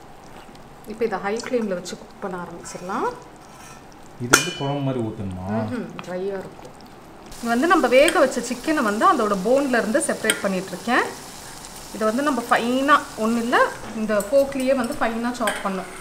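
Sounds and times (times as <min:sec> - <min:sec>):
forks scraping a metal bowl: 0:03.4 - 0:03.9.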